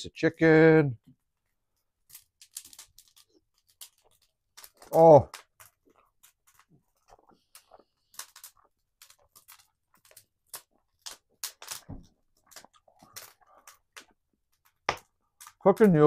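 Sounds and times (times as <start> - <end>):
man chewing food: 3.2 - 15.4.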